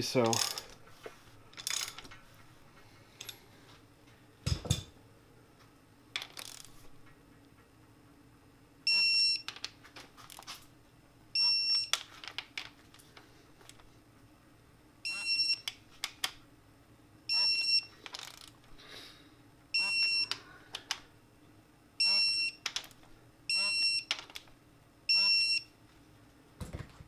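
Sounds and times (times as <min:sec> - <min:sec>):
two-tone wrench beep: 0:08.9 - 0:09.5, 0:11.4 - 0:12.0, 0:15.1 - 0:15.7, 0:17.3 - 0:17.9, 0:19.8 - 0:20.4, 0:22.0 - 0:22.6, 0:23.5 - 0:24.1, 0:25.1 - 0:25.7.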